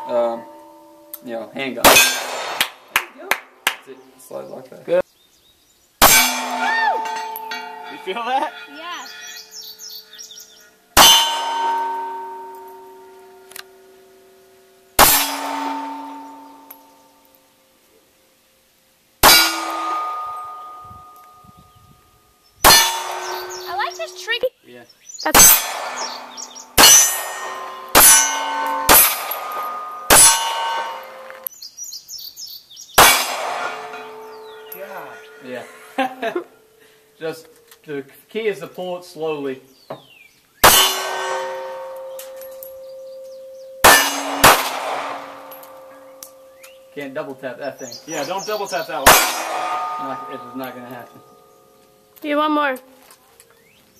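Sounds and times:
steel target plate ringing: 0:00.0 - 0:02.7, 0:06.0 - 0:10.4, 0:11.0 - 0:14.2, 0:14.9 - 0:17.6, 0:19.2 - 0:21.8, 0:22.6 - 0:24.4, 0:25.3 - 0:31.5, 0:33.0 - 0:36.4, 0:40.6 - 0:53.0
birds chirping: 0:03.1 - 0:13.9, 0:19.6 - 0:53.9
handgun shots: 0:43.9 - 0:45.7.

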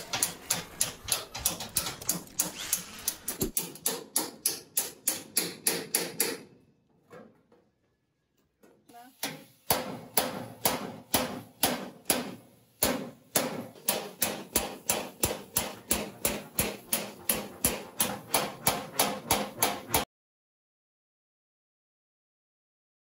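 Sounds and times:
hammer striking chisel on sheet metal: 0:00.0 - 0:06.6, 0:09.2 - 0:20.1.

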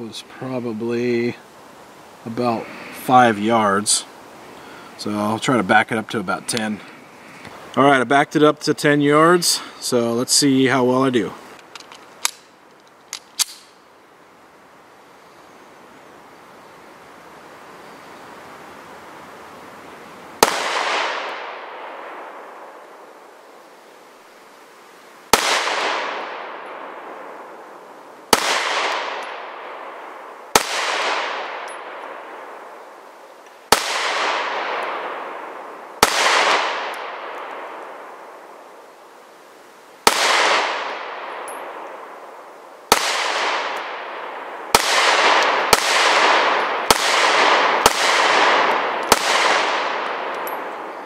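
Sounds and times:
pistol shots with echo: 0:20.4 - 0:22.6, 0:25.3 - 0:27.4, 0:28.3 - 0:32.5, 0:33.7 - 0:37.9, 0:40.0 - 0:42.1, 0:42.9 - 0:51.0.

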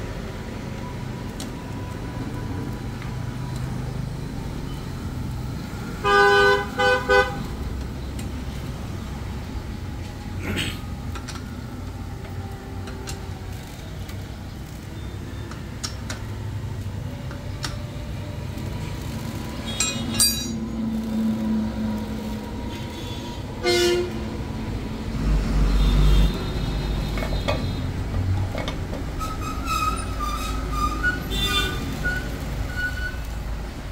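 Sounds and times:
road traffic rumble: 0:00.0 - 0:33.9
vehicle horn toot: 0:06.0 - 0:07.4, 0:23.0 - 0:24.2, 0:31.2 - 0:32.2
hand tools clicking on metal: 0:19.7 - 0:20.6.

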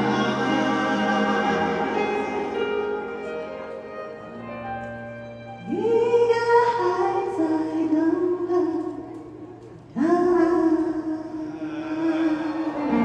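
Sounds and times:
piano accompaniment: 0:00.0 - 0:08.4.

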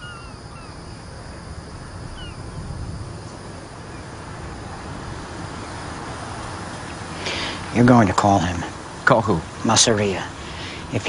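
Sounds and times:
low rumble: 0:00.0 - 0:07.8
falling bird calls: 0:00.0 - 0:09.6.

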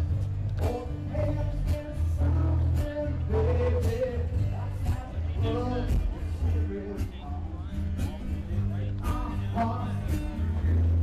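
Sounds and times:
song with drum beat and bass: 0:00.0 - 0:11.0
person singing: 0:08.0 - 0:10.6.

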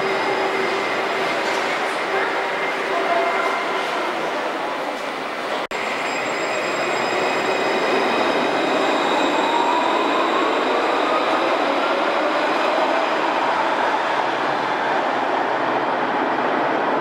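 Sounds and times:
tram running noise: 0:00.0 - 0:17.0.

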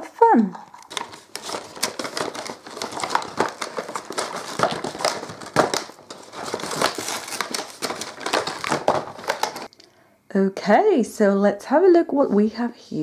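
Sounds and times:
packaging crinkling and crackling: 0:00.6 - 0:09.8.

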